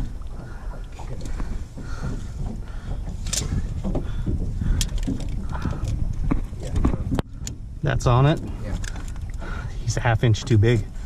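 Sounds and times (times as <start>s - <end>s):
wind buffeting microphone: 0.0s - 11.0s
clicks and knocks from handling: 1.1s - 7.6s.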